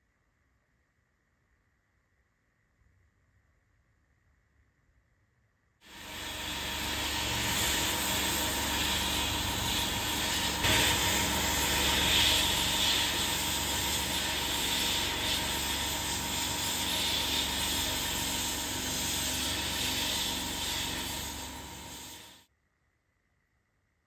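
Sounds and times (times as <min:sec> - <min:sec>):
blast gun hissing: 0:05.9 - 0:22.4.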